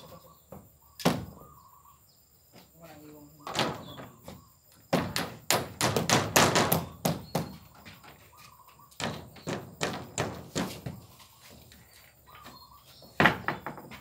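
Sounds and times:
hammer nailing plywood: 0:04.9 - 0:07.7, 0:09.0 - 0:11.0.

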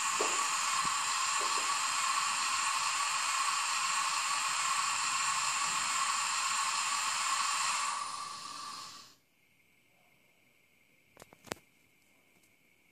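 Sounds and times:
thin engine hiss from tiny speaker: 0:00.0 - 0:09.2.

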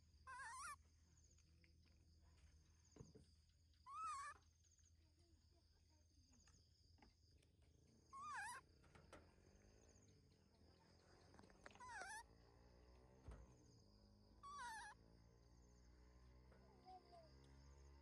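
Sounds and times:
baby monkey crying: 0:00.3 - 0:00.8, 0:03.9 - 0:04.4, 0:08.2 - 0:08.6, 0:11.8 - 0:12.2, 0:14.4 - 0:15.0.

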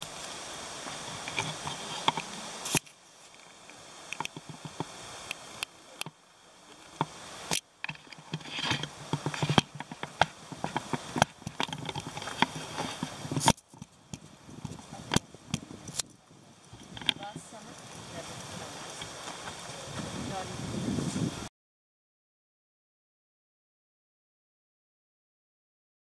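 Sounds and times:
twigs snapping: 0:07.0 - 0:16.1.

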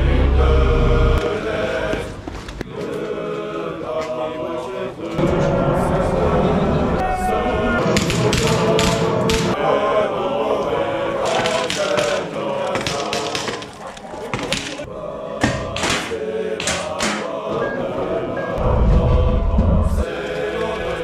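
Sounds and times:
choir singing chant-like music: 0:00.0 - 0:21.0
sharp cracks: 0:11.3 - 0:14.8.

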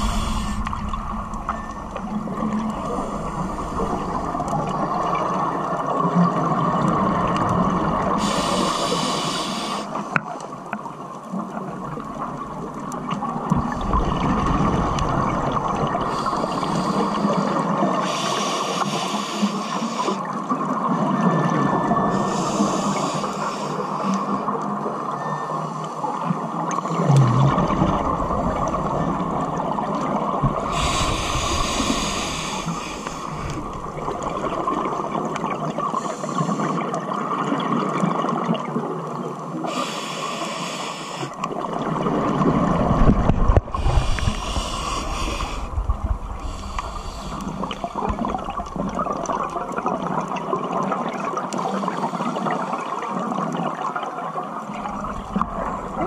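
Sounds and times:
regulator inhalation hiss: 0:00.0 - 0:01.2, 0:08.2 - 0:10.0, 0:16.1 - 0:20.2, 0:22.2 - 0:24.1, 0:30.7 - 0:33.6, 0:39.7 - 0:41.4, 0:43.7 - 0:45.7, 0:46.4 - 0:48.0
underwater hiss: 0:00.0 - 0:05.4, 0:07.9 - 0:10.2, 0:15.8 - 0:20.3, 0:22.1 - 0:24.4, 0:26.8 - 0:35.2, 0:35.8 - 0:37.0, 0:39.6 - 0:41.6, 0:42.2 - 0:48.9
exhaled bubbles rumbling: 0:00.0 - 0:08.3, 0:11.0 - 0:18.0, 0:26.8 - 0:36.1, 0:41.5 - 0:51.5, 0:52.8 - 0:56.0.

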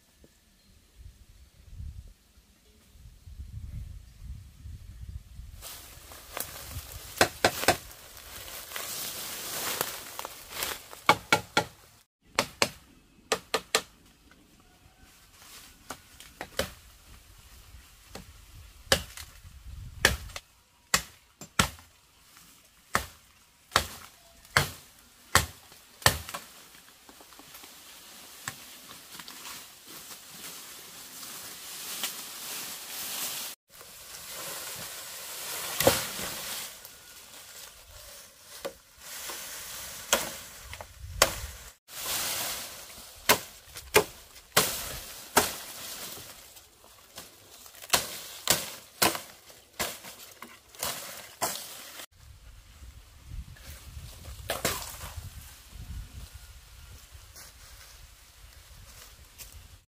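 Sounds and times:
sharp chopping strikes: 0:20.0 - 0:21.8, 0:22.9 - 0:26.5, 0:41.2 - 0:41.5, 0:43.2 - 0:45.8.

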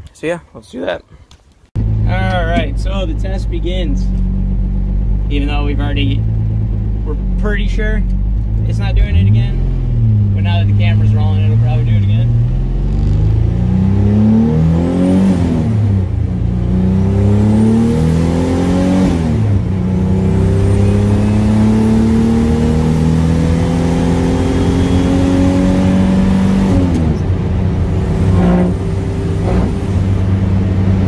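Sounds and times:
car engine accelerating: 0:01.8 - 0:31.0.

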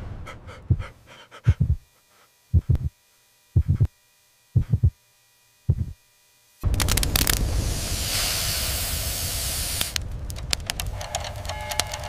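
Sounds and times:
faint electronic hum: 0:00.0 - 0:12.0
noise burst: 0:00.0 - 0:12.0
heartbeat lub-dub: 0:00.1 - 0:01.9, 0:02.5 - 0:03.0, 0:03.6 - 0:04.0, 0:04.6 - 0:05.0, 0:05.7 - 0:06.0.

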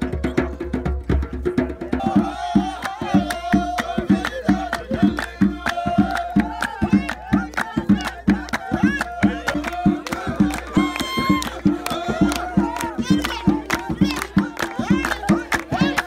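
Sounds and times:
hand drums beating: 0:00.0 - 0:16.0
men singing: 0:01.8 - 0:16.0
people clapping: 0:02.0 - 0:16.0.

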